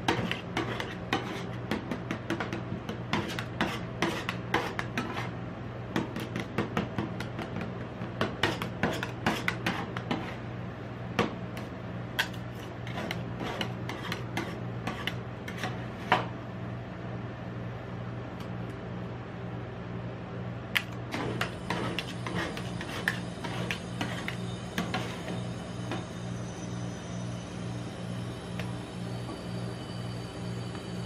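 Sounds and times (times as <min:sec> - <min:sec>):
metal spatulas tapping and scraping: 0:00.0 - 0:05.3, 0:06.0 - 0:10.4, 0:12.2 - 0:16.3
steady low hum: 0:00.0 - 0:31.0.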